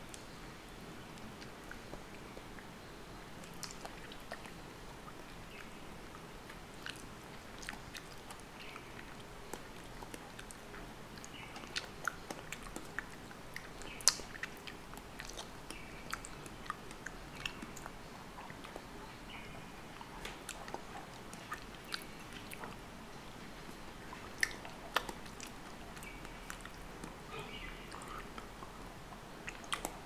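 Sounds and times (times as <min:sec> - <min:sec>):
orange peeling wet clicks and tearing: 0:06.5 - 0:18.9, 0:29.4 - 0:30.0.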